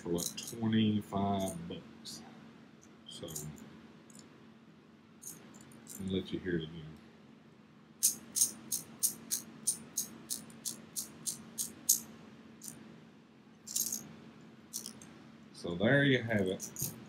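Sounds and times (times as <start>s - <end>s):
ratcheting pliers clicking: 0.2s - 0.6s, 8.0s - 12.0s, 14.8s - 15.0s.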